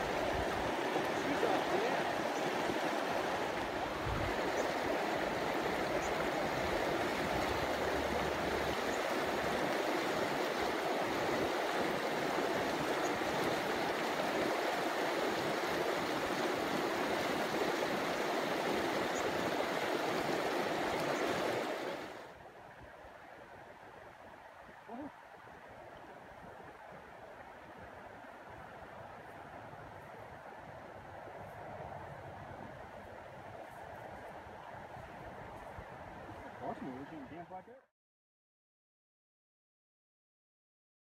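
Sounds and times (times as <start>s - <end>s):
stream rushing over rocks: 0.0s - 31.3s.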